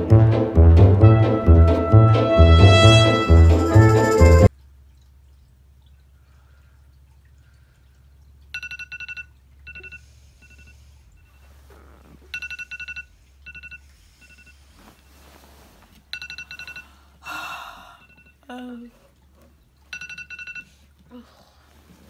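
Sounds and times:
smartphone alarm ringtone: 3.3 - 4.5, 8.6 - 10.8, 12.3 - 14.6, 16.2 - 16.9, 19.9 - 20.8.

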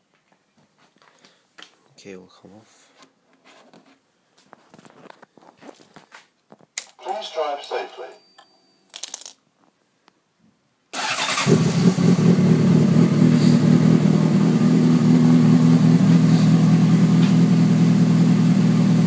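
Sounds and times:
motorcycle engine starting and idling: 11.0 - 19.0.

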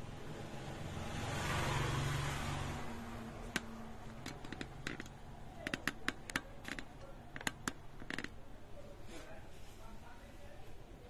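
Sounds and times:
small sharp clicks and taps: 3.4 - 8.4.

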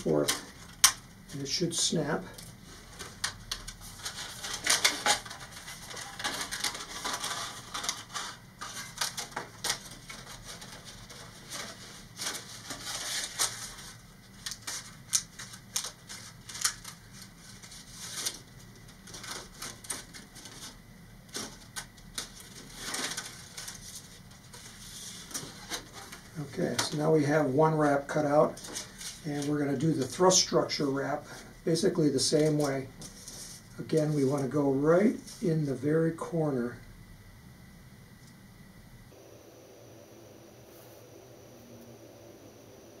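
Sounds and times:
plastic sheet crackling and snapping: 0.0 - 27.2, 27.8 - 30.7.

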